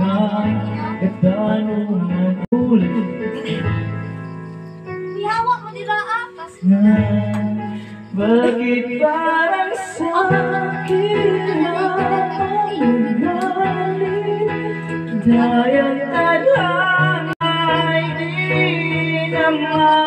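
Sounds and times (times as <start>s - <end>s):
man singing into microphone: 0.0s - 3.7s, 6.6s - 20.0s
instrumental backing music: 0.0s - 20.0s.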